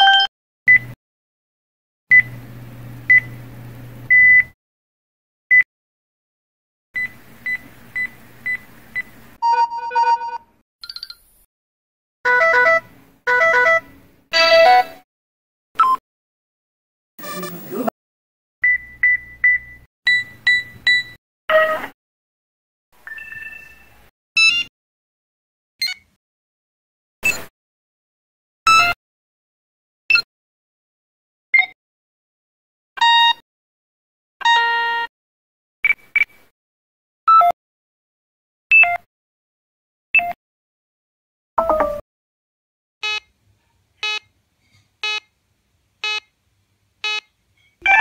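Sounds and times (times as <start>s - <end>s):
multi-note phone tone: 0.0s - 0.3s, 9.4s - 10.4s, 41.6s - 42.0s
short high phone beeps: 0.0s - 0.3s, 9.4s - 11.1s
quick high phone beeps: 0.0s - 0.8s.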